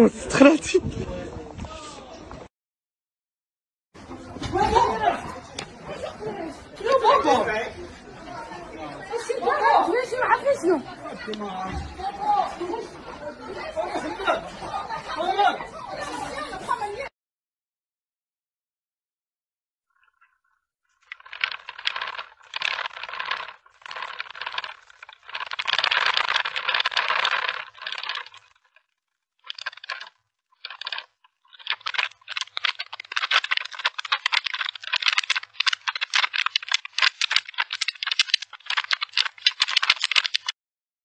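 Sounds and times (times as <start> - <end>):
earthquake rattling and clattering: 21.0 - 40.6
fast rattle of clicks: 21.1 - 28.8, 29.4 - 40.6.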